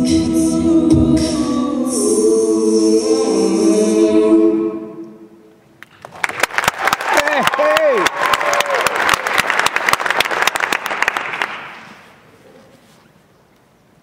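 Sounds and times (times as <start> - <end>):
women singing a cappella chord: 0.0 - 5.4
audience applause: 5.8 - 12.0.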